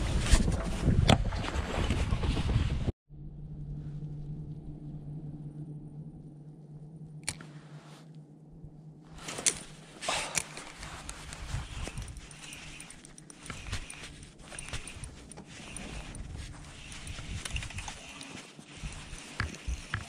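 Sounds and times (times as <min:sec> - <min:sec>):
rustling: 0:09.0 - 0:20.0.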